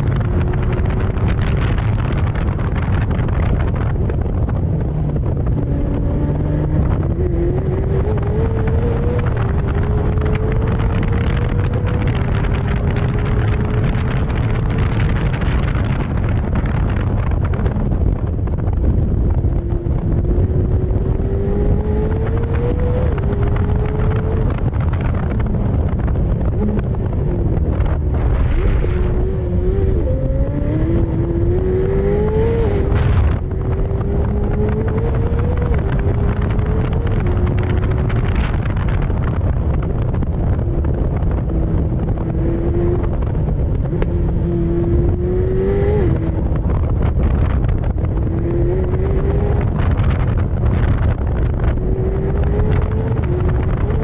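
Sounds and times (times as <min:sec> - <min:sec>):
sports car engine shifting gears: 0:00.0 - 0:54.0.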